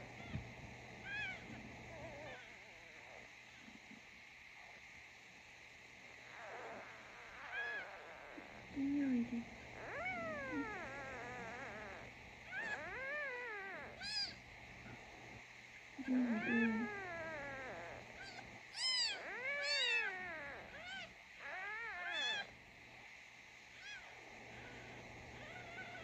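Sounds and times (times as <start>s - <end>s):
newborn kitten mewing: 1.0s - 3.2s, 6.2s - 14.4s, 16.0s - 22.5s, 23.8s - 26.0s.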